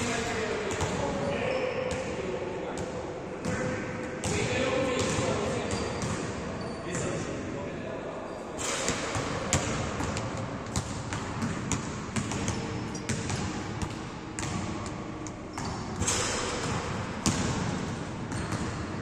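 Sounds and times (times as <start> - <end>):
basketballs bouncing on court: 0.0 - 7.1, 8.6 - 19.0.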